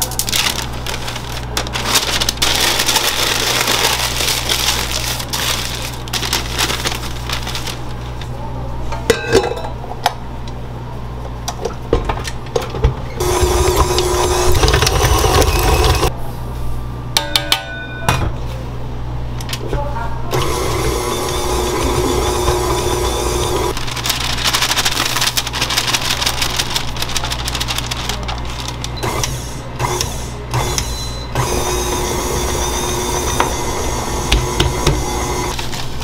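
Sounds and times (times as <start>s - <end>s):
scraping and rustling: 0.0s - 8.4s, 23.7s - 29.0s
low machine hum: 0.0s - 36.0s
utensils and pans clinking: 9.0s - 9.8s
loud whirring: 13.2s - 16.1s, 20.3s - 23.8s, 28.6s - 35.6s.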